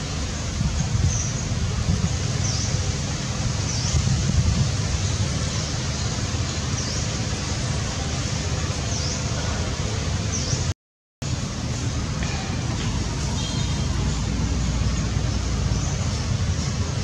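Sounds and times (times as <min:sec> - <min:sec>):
wind buffeting microphone: 0:00.0 - 0:07.7
faint high chirp: 0:12.7 - 0:15.1.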